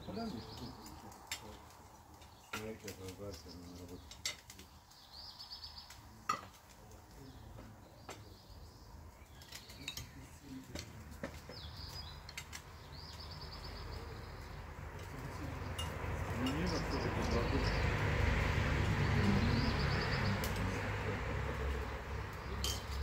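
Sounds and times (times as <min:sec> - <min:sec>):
cutlery clinking on plates: 0:04.1 - 0:04.6, 0:15.7 - 0:16.8, 0:22.6 - 0:23.0.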